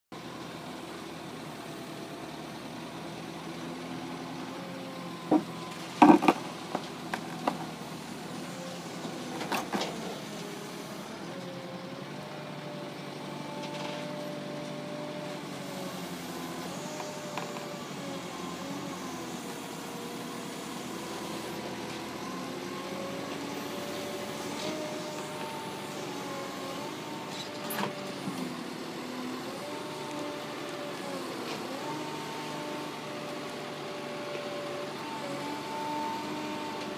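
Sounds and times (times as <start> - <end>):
excavator engine running: 0.2 - 36.9
hydraulic whine: 15.4 - 33.5.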